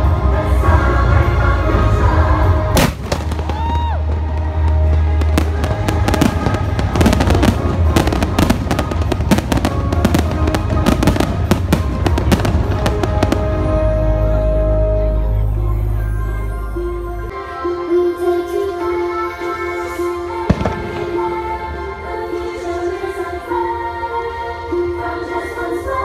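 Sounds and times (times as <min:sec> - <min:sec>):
music playing: 0:00.0 - 0:26.0
fireworks bangs and crackles: 0:02.7 - 0:14.0, 0:20.5 - 0:21.8.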